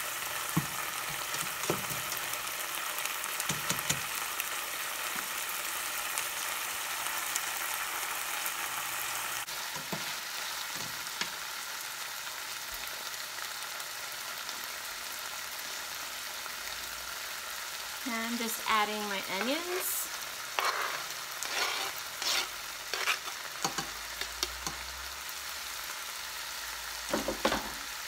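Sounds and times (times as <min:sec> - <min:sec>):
meat sizzling in a frying pan: 0:00.0 - 0:28.0
metal spatula scraping a pan: 0:20.5 - 0:24.8.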